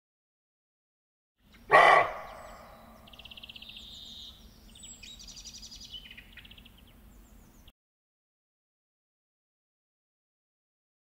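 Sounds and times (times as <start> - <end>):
songbirds trilling: 1.4 - 7.7.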